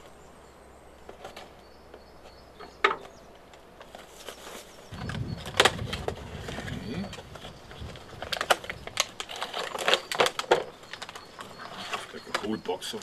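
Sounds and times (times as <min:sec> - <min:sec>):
cardboard rustling: 0:03.8 - 0:12.6.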